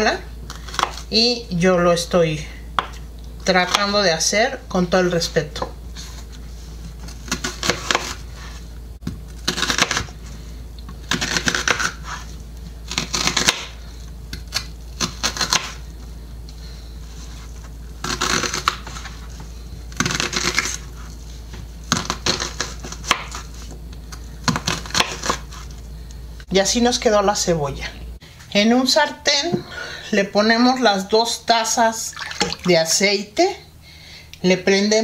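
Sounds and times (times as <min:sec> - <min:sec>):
knife chopping on wooden board: 0:12.9 - 0:13.7, 0:21.9 - 0:23.4, 0:24.4 - 0:25.4.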